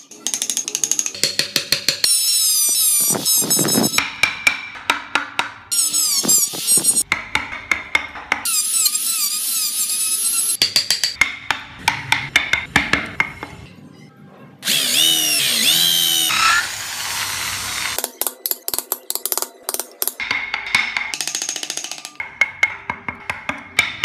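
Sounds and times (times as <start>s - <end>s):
chisel knocking on wood: 7.0s - 8.5s, 10.6s - 13.6s, 22.2s - 24.0s
drill boring into wood: 14.6s - 18.0s
small power tool whining: 14.6s - 18.0s.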